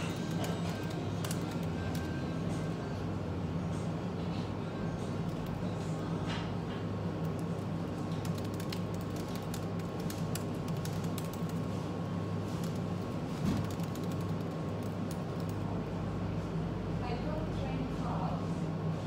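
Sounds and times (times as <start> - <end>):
fast typing on laptop keyboard: 0.0 - 2.3, 7.0 - 15.8
low background hum: 0.0 - 19.0.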